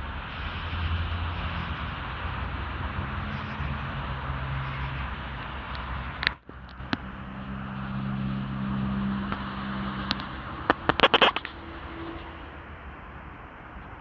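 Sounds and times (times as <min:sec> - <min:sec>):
outdoor street noise: 0:00.0 - 0:14.0
vehicle engine humming: 0:00.0 - 0:14.0
sharp clicks and crackles: 0:05.4 - 0:07.1, 0:09.3 - 0:11.6.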